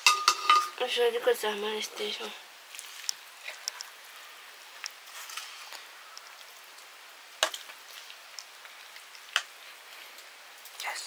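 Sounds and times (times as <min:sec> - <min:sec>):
utensils tapping against a pot: 0:00.0 - 0:00.8
faint steady hiss: 0:00.0 - 0:11.0.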